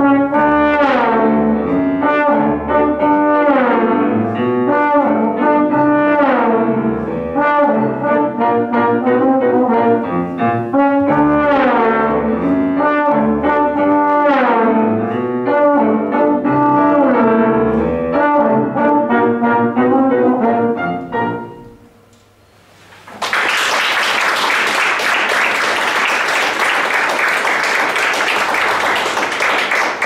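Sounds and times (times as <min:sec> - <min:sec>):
trombone playing ragtime: 0:00.0 - 0:21.8
trombone slide: 0:00.0 - 0:22.0
piano accompaniment: 0:00.0 - 0:22.1
audience applause: 0:23.1 - 0:30.0.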